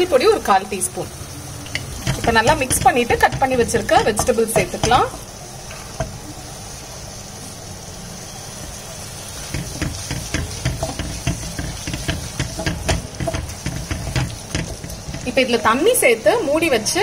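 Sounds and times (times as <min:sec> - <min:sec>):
food sizzling in a pan: 0:00.0 - 0:17.0
wooden spatula scraping a pan: 0:09.4 - 0:15.7.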